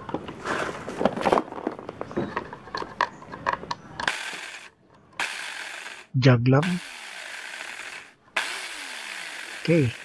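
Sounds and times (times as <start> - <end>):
plastic and metal parts clicking: 1.9 - 5.2.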